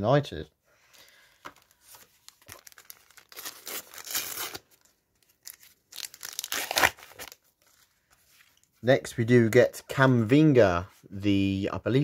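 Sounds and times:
wrapper tearing and crinkling: 1.6s - 7.8s.

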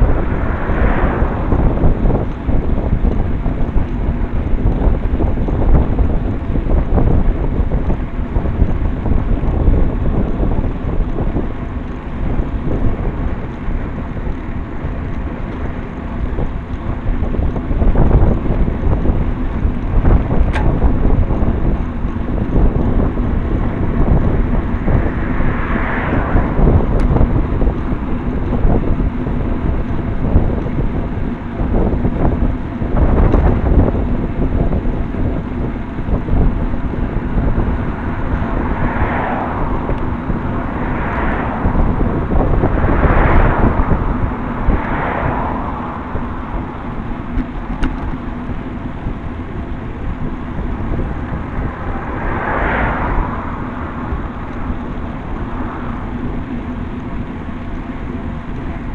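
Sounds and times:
vehicles swishing past: 0.0s - 4.2s, 19.6s - 30.4s, 35.7s - 58.9s
tyre and road rumble: 0.0s - 58.9s
wind buffeting microphone: 0.0s - 58.9s.

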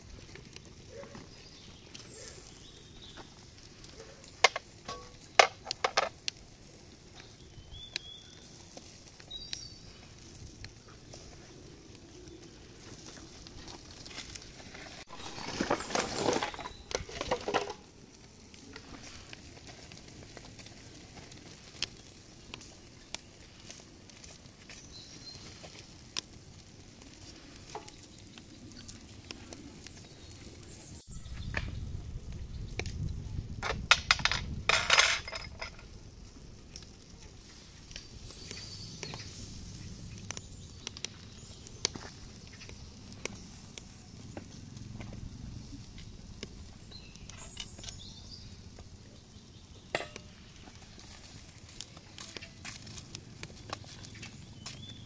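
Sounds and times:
fish sizzling on grill: 0.0s - 55.0s
metal grill baskets clinking: 4.0s - 6.2s, 15.0s - 17.9s, 33.6s - 36.0s, 49.9s - 51.4s.

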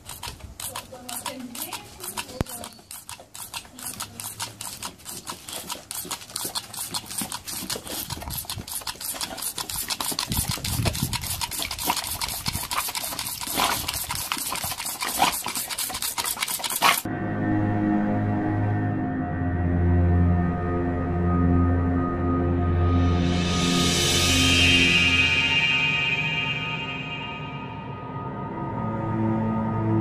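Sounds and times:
water spatter: 0.0s - 17.1s.

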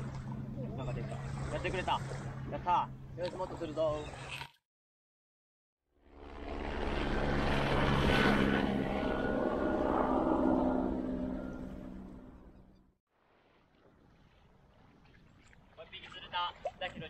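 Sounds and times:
propeller aircraft engine droning: 0.0s - 4.2s, 5.9s - 13.0s.

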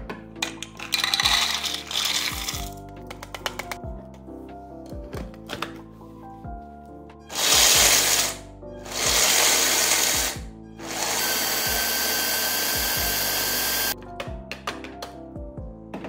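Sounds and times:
hand blender motor grinding: 1.3s - 2.6s, 7.3s - 14.0s.

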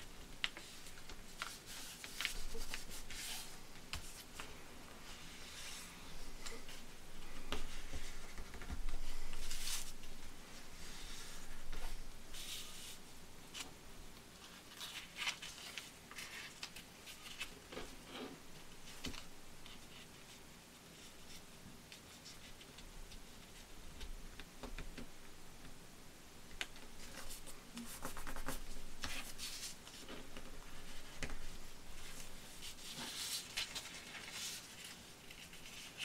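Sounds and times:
paper rustling and crinkling: 0.0s - 10.2s, 14.4s - 18.2s, 26.9s - 36.0s.

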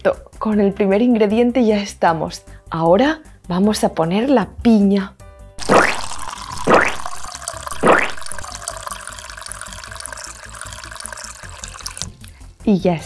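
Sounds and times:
gel beads pouring into glass jug: 5.6s - 12.3s.

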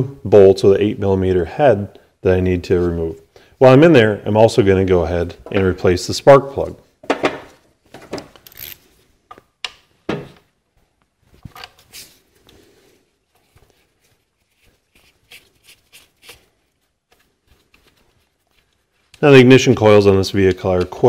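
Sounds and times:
socket and ratchet clicking: 8.3s - 8.8s.

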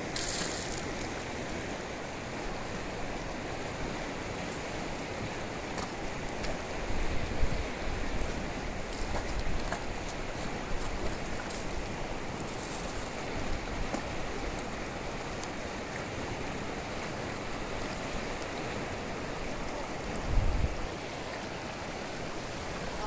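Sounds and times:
river water rushing: 0.0s - 23.0s
wind buffeting microphone: 20.1s - 20.9s.

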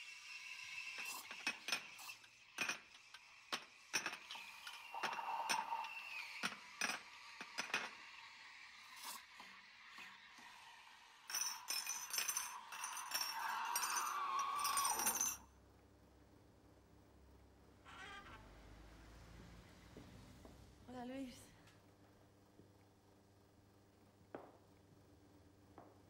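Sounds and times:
cups glasses and spoons clinking: 11.2s - 15.4s.

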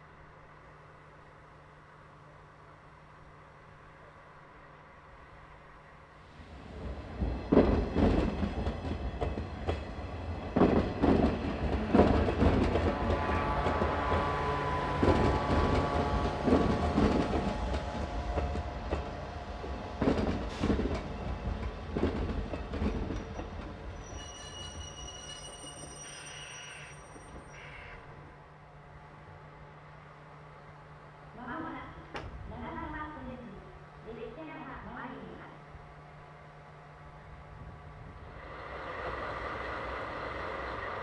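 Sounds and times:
faint wheel squeal: 23.9s - 28.1s.

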